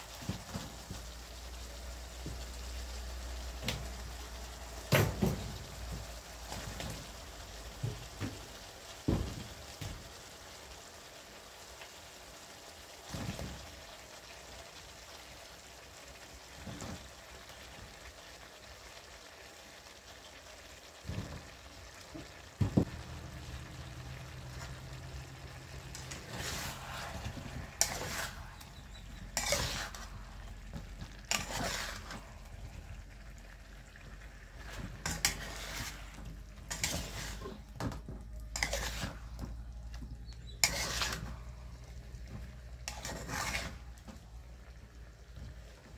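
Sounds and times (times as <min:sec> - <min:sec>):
sauce sizzling: 0:00.0 - 0:45.9
metal spatula scraping wok: 0:22.2 - 0:45.3.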